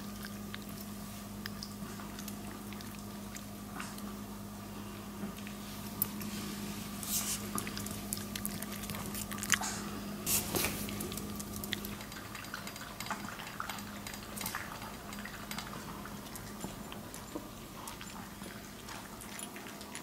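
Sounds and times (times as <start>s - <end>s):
dog eating from plastic bowl: 5.4s - 20.0s.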